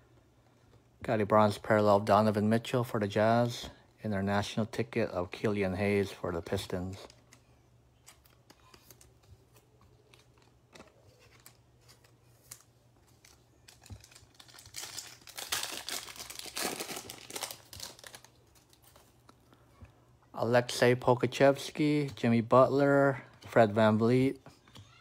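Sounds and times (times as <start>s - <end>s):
foil wrapper crackling: 10.0s - 19.3s.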